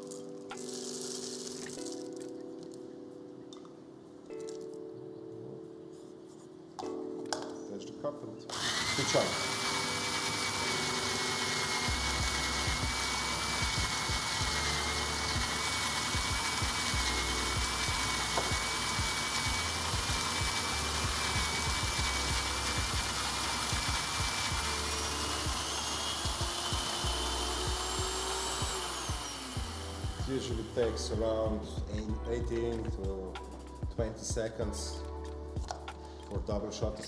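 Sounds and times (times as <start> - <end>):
coffee grinder motor whine: 8.5 - 31.7.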